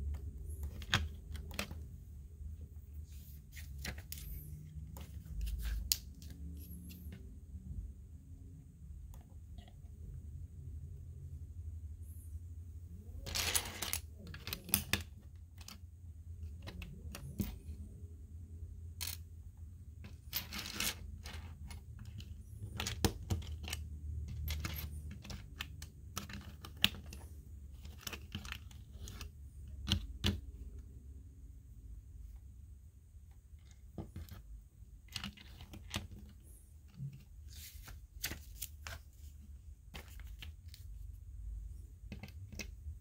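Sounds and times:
plastic bricks clicking and clattering: 13.2s - 15.8s, 20.0s - 30.5s, 42.0s - 43.0s.

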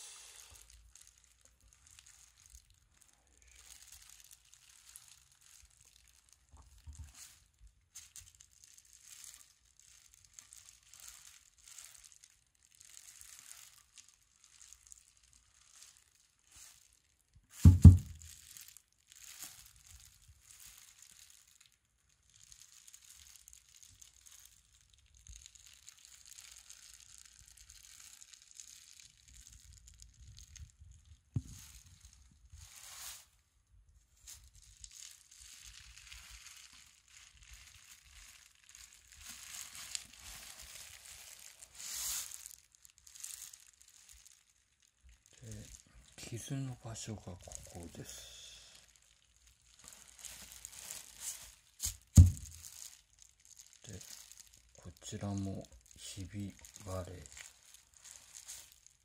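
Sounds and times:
bubble wrap crinkling: 0.0s - 59.0s
loud low thump: 17.7s - 18.2s.

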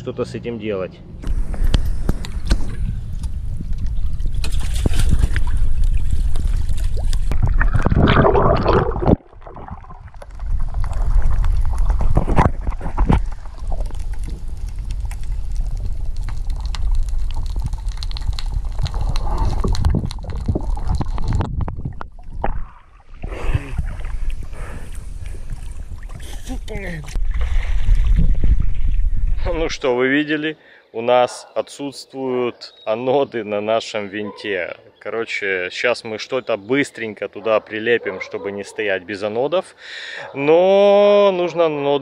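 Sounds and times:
water sloshing and gurgling: 1.2s - 29.7s
water splashing: 3.8s - 29.7s.

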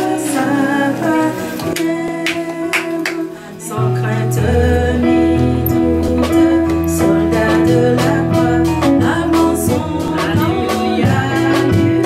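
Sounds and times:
instrumental hymn music: 0.0s - 12.0s.

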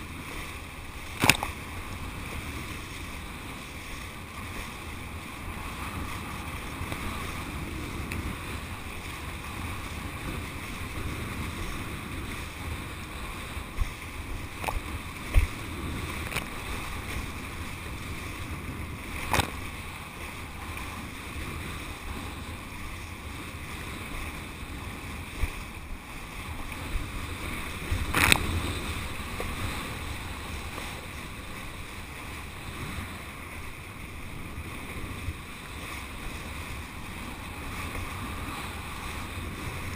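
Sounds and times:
board skimming over water: 0.0s - 39.9s
wind rushing over microphone: 0.0s - 39.9s
sharp slaps on water: 1.1s - 1.6s, 19.2s - 19.6s.

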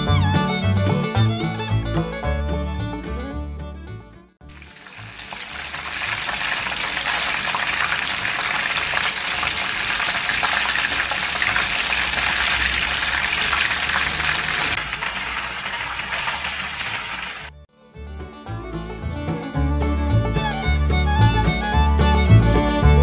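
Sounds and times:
chicken deep-frying in oil: 4.4s - 17.6s.

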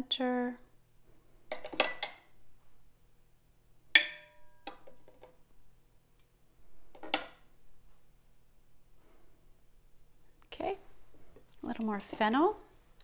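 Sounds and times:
metal spoon clinking ceramic bowl: 1.5s - 2.3s, 4.0s - 5.0s.

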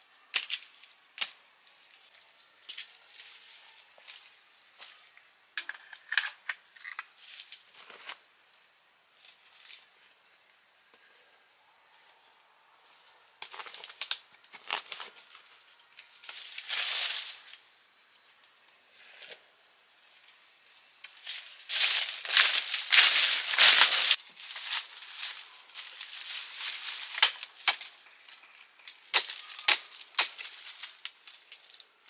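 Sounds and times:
dry plant material crackling: 13.4s - 17.6s, 21.0s - 32.0s.

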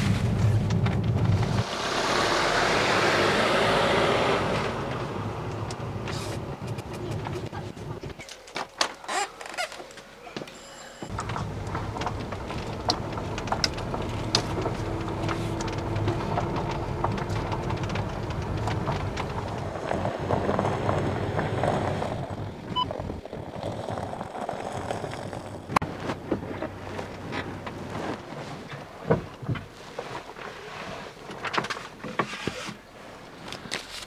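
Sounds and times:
van engine and road rumble: 0.0s - 10.3s, 11.1s - 34.0s
clicks and rattles: 11.1s - 20.5s.

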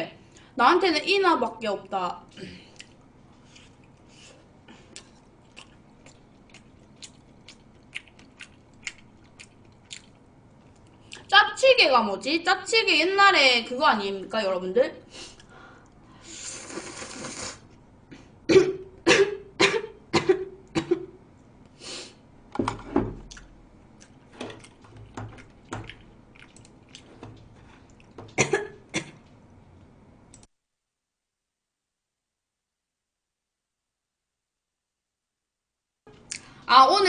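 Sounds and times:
woman chewing and swallowing: 4.8s - 11.3s, 23.2s - 30.0s
woman slurping noodles: 16.3s - 17.7s.

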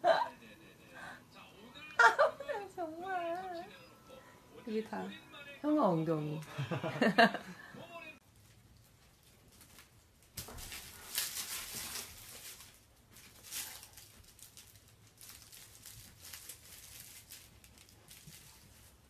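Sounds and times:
fabric hamper rustling: 8.3s - 19.0s.

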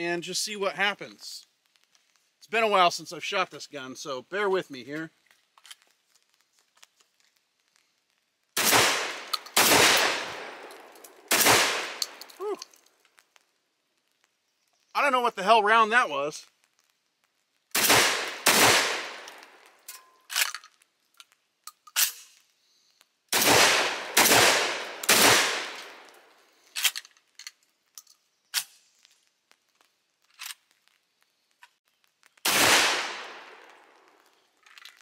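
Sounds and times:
shotgun shots: 8.6s - 10.7s, 11.3s - 12.2s, 17.8s - 19.4s, 23.3s - 26.1s, 32.4s - 33.7s.

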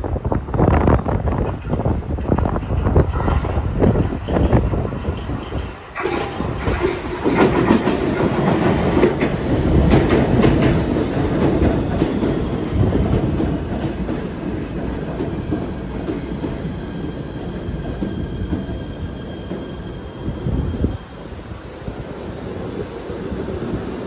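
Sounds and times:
train wheels rumbling and clicking: 0.0s - 21.1s
faint high squeal: 19.0s - 24.0s.

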